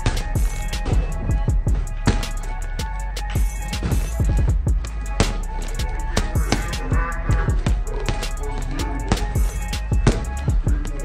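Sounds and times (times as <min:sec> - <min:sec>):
kick drum beat: 0:00.0 - 0:11.0.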